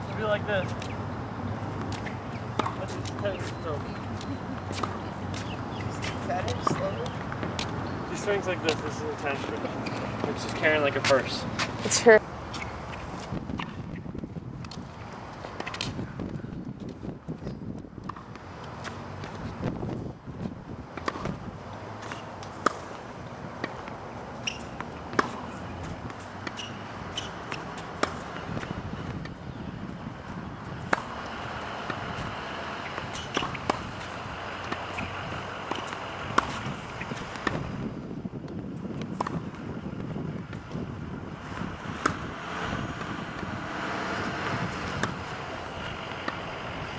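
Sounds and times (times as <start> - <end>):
tennis racket striking ball: 23.6 - 29.4, 30.8 - 37.6, 41.5 - 46.9.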